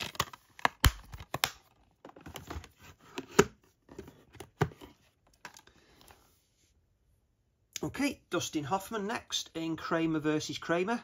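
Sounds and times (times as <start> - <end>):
plastic cases clicking and knocking: 0.0 - 5.7.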